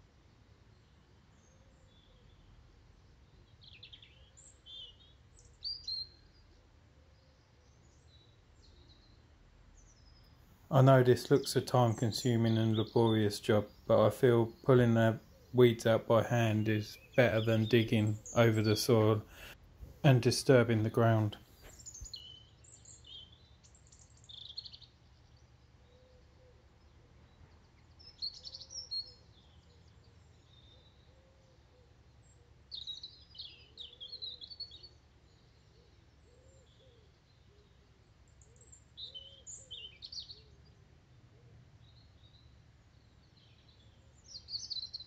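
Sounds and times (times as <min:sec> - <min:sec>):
robin singing: 0:10.8 - 0:25.0, 0:28.0 - 0:31.0, 0:38.4 - 0:40.4, 0:43.3 - 0:45.0.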